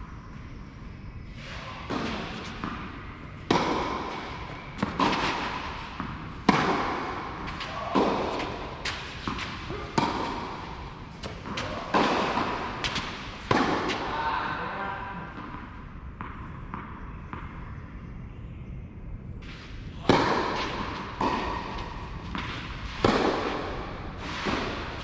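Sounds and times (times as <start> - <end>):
tennis racket hitting ball: 1.9 - 14.1, 20.0 - 25.0.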